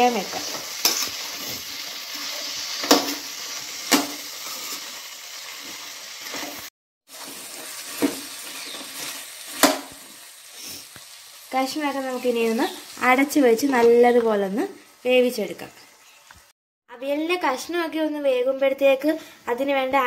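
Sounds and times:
spatula stirring vegetables in pan: 0.0s - 15.1s
light sizzle: 0.0s - 16.6s.

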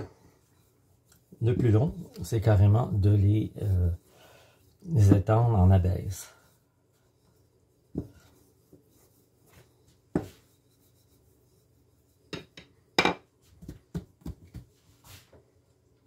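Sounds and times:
rolling pin rubbing dough: 0.0s - 12.6s.

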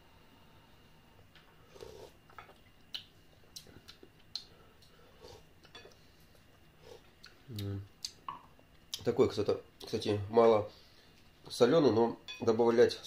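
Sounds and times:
soft mouth sounds: 6.8s - 8.2s.

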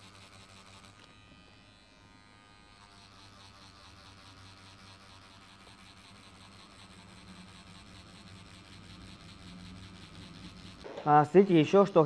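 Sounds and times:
tattoo machine buzzing: 0.0s - 12.0s.

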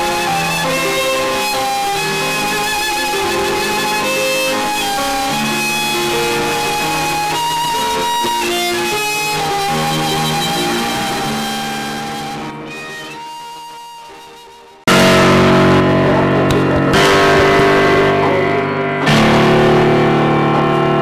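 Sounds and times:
bowed violin long notes: 0.0s - 21.0s
keyboard chords: 0.0s - 21.0s.

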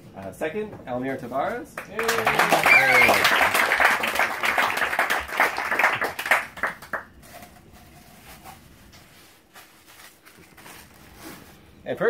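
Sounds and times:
small group clapping: 1.8s - 7.1s.

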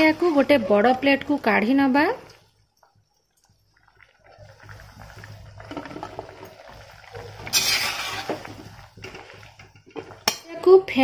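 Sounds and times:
water boiling in a wok: 0.0s - 11.0s
spoon scrape and splash: 7.1s - 10.2s
slotted spoon stirring: 7.1s - 10.3s.

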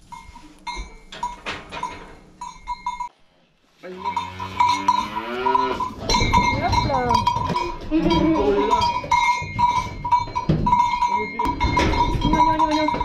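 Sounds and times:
hooves knocking on trailer floor: 5.8s - 13.0s.

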